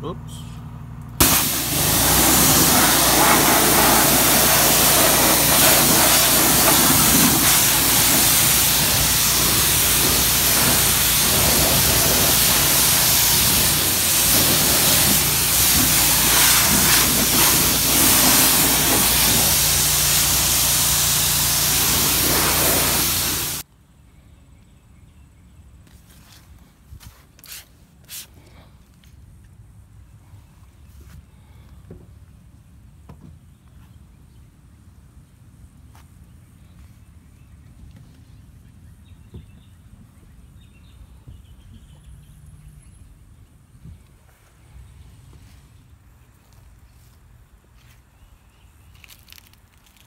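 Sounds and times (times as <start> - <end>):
pressure washer spraying: 1.2 - 23.6.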